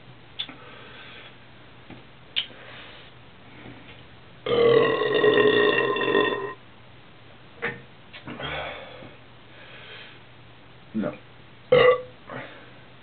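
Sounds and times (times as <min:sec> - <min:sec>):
man burping loudly: 0:04.5 - 0:06.6, 0:11.7 - 0:12.5.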